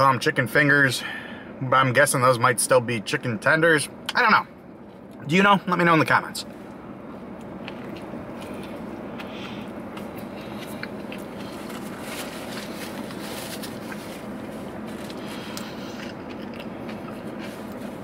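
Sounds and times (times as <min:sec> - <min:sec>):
background hum: 0:00.0 - 0:18.0
person chewing crunchy food: 0:07.2 - 0:18.0.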